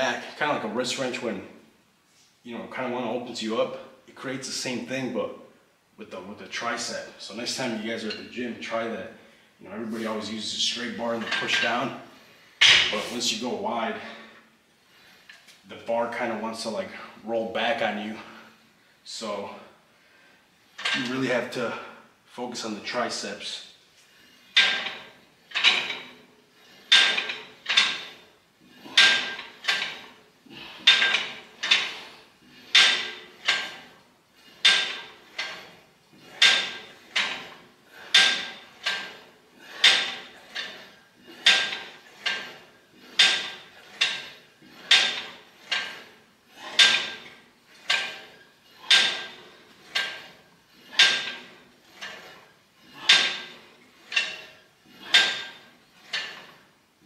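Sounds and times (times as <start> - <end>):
cable machine metallic clanks: 10.0 - 12.0, 12.6 - 14.2, 20.7 - 21.4, 24.2 - 56.7.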